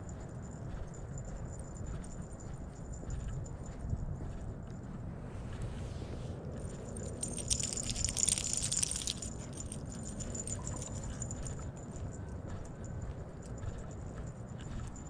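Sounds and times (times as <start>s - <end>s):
footsteps on paved path: 3.1s - 15.0s
leash metal jingling: 6.6s - 15.0s.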